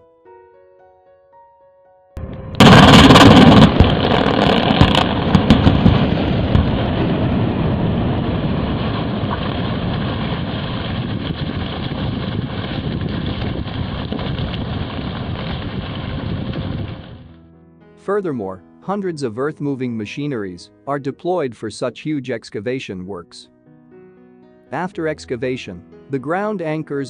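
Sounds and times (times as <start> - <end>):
loud blast detonation: 2.2 - 17.3
long rumbling noise: 2.2 - 17.4
sharp cracks: 2.2 - 17.4.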